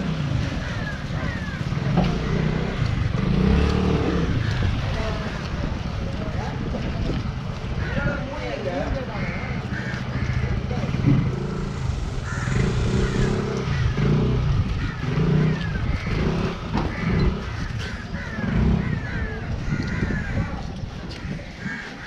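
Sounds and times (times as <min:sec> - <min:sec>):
crows cawing: 0:00.4 - 0:01.8, 0:07.8 - 0:08.3, 0:09.1 - 0:11.0, 0:11.7 - 0:22.0.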